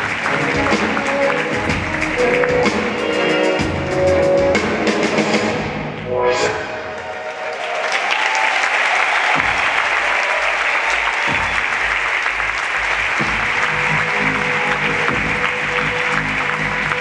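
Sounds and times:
audience applause: 0.0 - 3.9, 6.9 - 17.0
music with booming drum: 0.0 - 5.9, 9.4 - 10.0, 11.3 - 11.8, 13.1 - 15.6.

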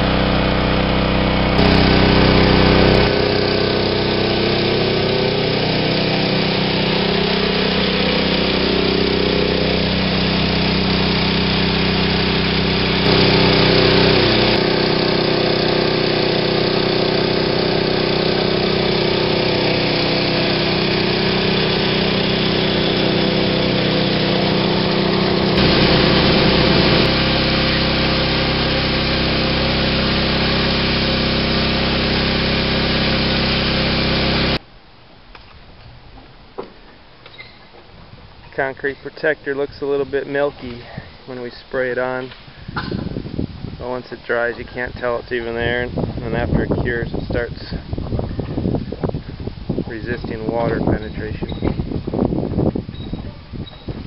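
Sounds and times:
pressure washer engine drone: 0.0 - 34.6, 38.5 - 53.0
water jet hissing on concrete: 1.5 - 34.6.

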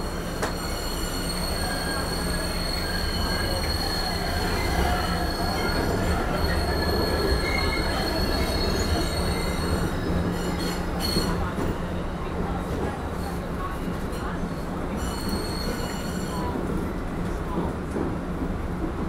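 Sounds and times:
high-pitched wheel squeal: 0.0 - 11.4, 15.0 - 16.5
low rumble of rail car: 0.0 - 19.0.

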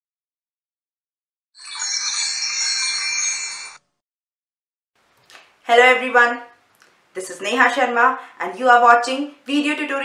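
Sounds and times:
shimmering chime: 1.6 - 3.8.

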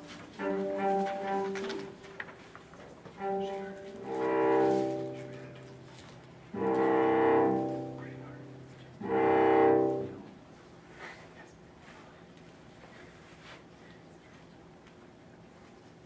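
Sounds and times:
cello bowing low notes: 0.0 - 2.2, 3.1 - 10.5.

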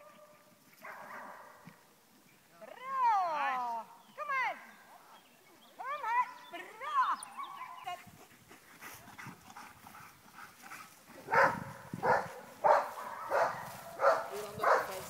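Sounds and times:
dog barking: 0.1 - 1.6, 11.2 - 15.0.

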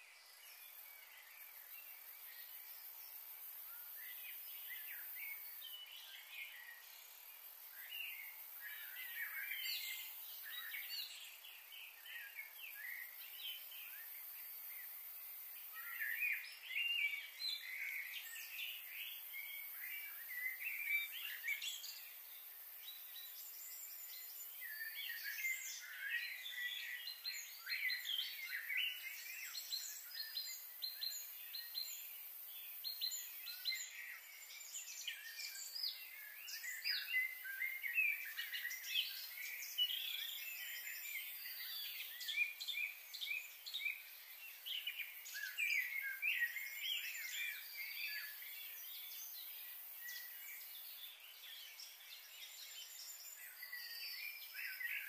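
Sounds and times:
wild birds chirping: 0.1 - 55.0.

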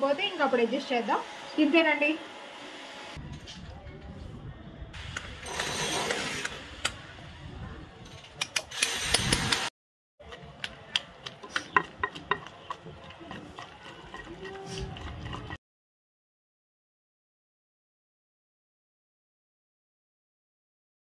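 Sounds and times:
pestle pounding in stone mortar: 10.6 - 15.6.

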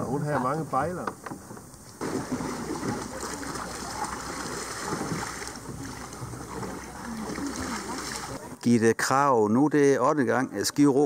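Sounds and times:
water sounds: 1.4 - 11.0
faint distant voices: 2.0 - 8.6.

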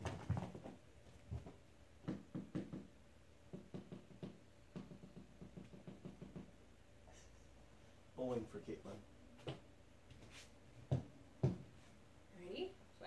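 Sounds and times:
soft irregular knocks and taps: 0.0 - 6.6, 9.4 - 11.8.

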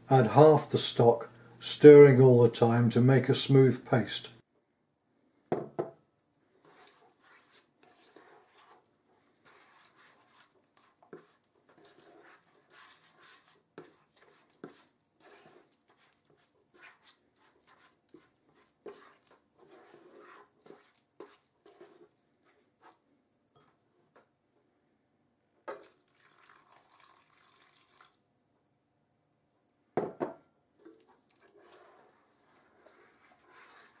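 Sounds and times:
wet squelching and scraping: 6.6 - 23.1, 30.8 - 34.0.

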